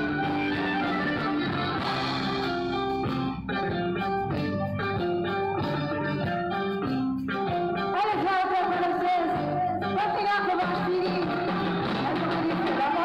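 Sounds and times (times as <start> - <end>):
accordion: 0.0 - 8.0
live latin band music: 0.0 - 13.0
woman singing: 7.9 - 13.0.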